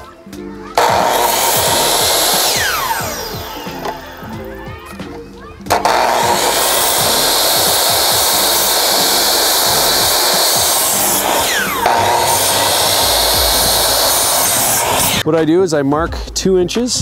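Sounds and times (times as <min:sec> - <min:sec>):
miter saw cutting wood: 0:00.8 - 0:04.3, 0:05.7 - 0:15.2.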